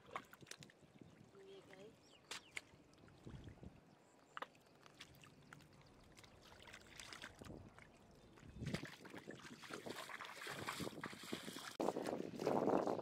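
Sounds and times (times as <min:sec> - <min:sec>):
hands squelching in mud and water: 0:00.0 - 0:00.9, 0:02.2 - 0:13.0
short sharp splashes: 0:06.1 - 0:07.9, 0:08.6 - 0:12.6.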